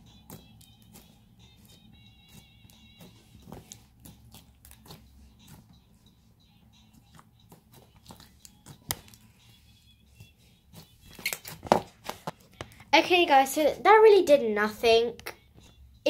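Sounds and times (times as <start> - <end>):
wet slime squelching: 0.0 - 6.1, 6.8 - 12.8.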